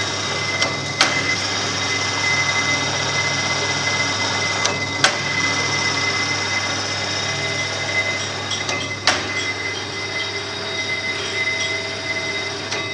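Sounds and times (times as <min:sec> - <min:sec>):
grooving machine running: 0:00.0 - 0:12.9
thin high whine: 0:05.0 - 0:12.9.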